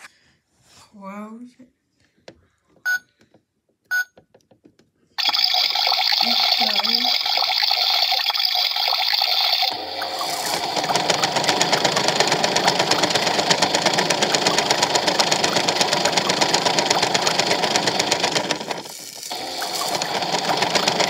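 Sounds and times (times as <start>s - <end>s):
toy washing machine motor rattling: 5.2s - 21.0s
water filling hiss: 5.2s - 21.0s.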